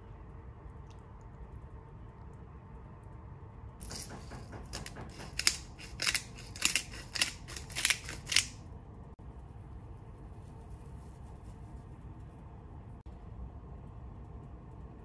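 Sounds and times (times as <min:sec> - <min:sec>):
pepper mill grinding: 0:03.8 - 0:08.6.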